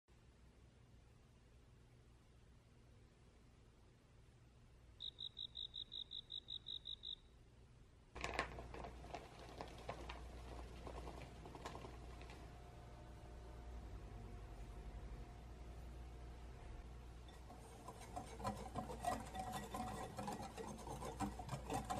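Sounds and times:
flour poured into glass bowl: 0:08.2 - 0:12.6.

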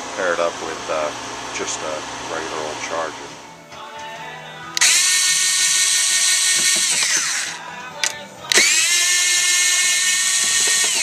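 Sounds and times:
cordless screwdriver motor whine: 0:04.8 - 0:11.0
screwdriver click: 0:04.8 - 0:11.0.

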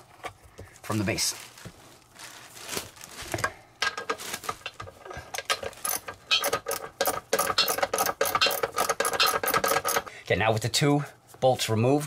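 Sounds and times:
socket ratchet clicking: 0:05.4 - 0:10.1.

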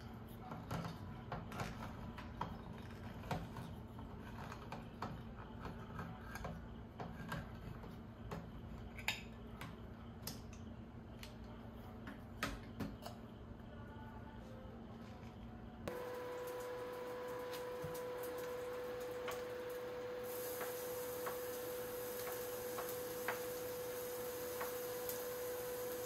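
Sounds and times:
steady low hum: 0:09.4 - 0:26.0.

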